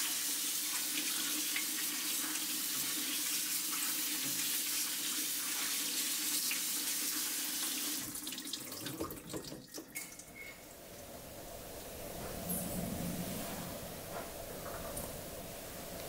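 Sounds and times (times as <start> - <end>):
tap water splashing into colander: 0.0 - 10.3
water dripping: 8.0 - 10.6.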